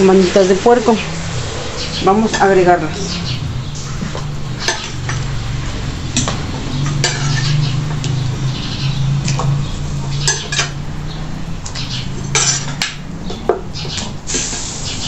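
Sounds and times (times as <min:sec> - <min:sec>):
steady low hum: 0:00.0 - 0:06.4.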